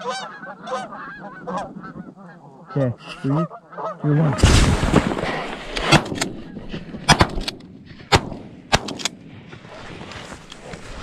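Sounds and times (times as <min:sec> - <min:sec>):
shotgun blasts: 0:07.0 - 0:09.3.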